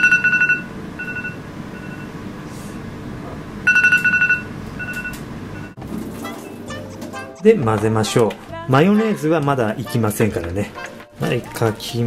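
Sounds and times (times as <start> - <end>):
electronic timer alarm beeping: 0.0 - 2.1, 3.7 - 5.8.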